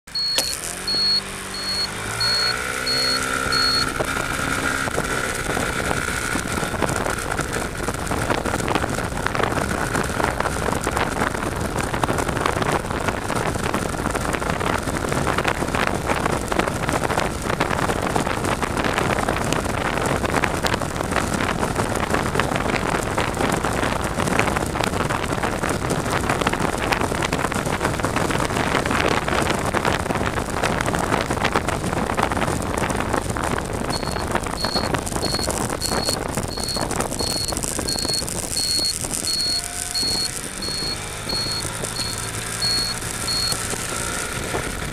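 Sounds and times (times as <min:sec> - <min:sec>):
motorcycle motor and road noise: 0:00.0 - 0:44.9
high whine: 0:00.1 - 0:05.0, 0:33.8 - 0:44.0
wind rushing on microphone: 0:00.2 - 0:44.9.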